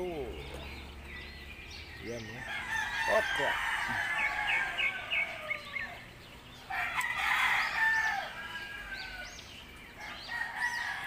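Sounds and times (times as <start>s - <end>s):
rooster crowing: 2.4s - 6.1s, 6.7s - 9.4s, 10.0s - 11.0s.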